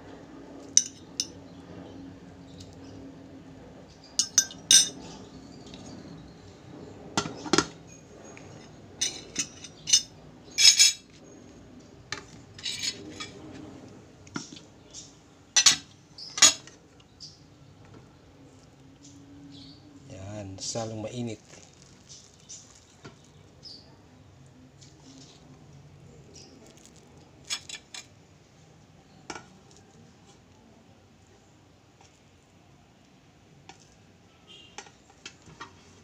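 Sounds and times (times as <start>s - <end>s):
metal utensil clinking on glass plate: 0.8s - 1.3s, 4.2s - 5.0s, 9.0s - 11.0s.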